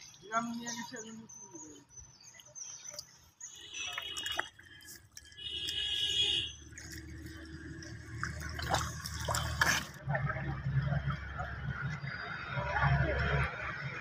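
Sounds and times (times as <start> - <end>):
muddy water trickling: 0.0 - 13.0
bare feet wading through water: 1.9 - 12.7.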